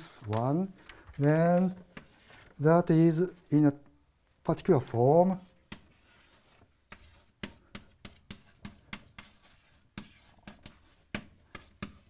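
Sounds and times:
chalk tapping and scratching: 1.5 - 2.6, 5.2 - 12.0.

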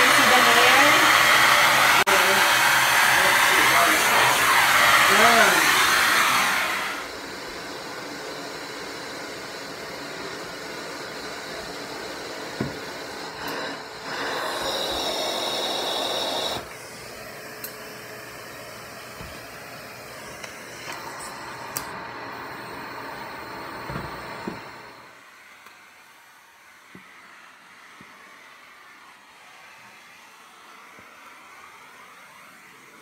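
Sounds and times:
vacuum suction rushing: 0.0 - 7.3, 12.0 - 17.4.

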